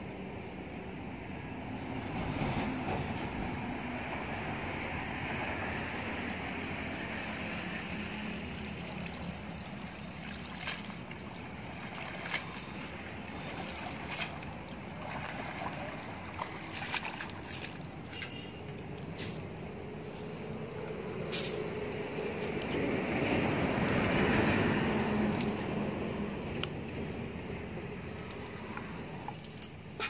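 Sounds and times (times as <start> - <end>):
water sloshing and dripping: 5.9 - 30.0
short sharp splashes: 8.6 - 19.4.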